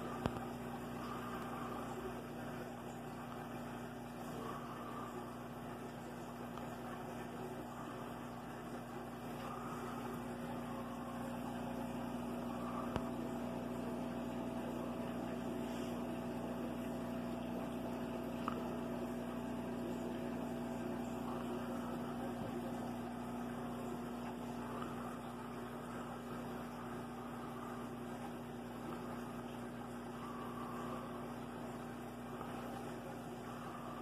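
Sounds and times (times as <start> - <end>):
aquarium pump humming: 0.0 - 34.0.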